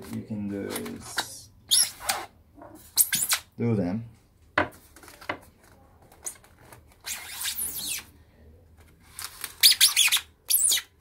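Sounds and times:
high-pitched foam squeaks: 7.0s - 8.1s, 9.6s - 11.0s.

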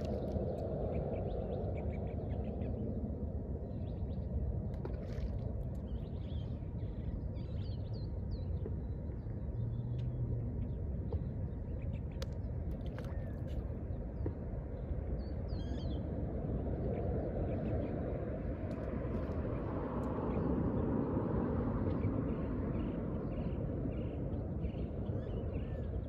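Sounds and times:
low outdoor rumble: 0.0s - 26.0s.

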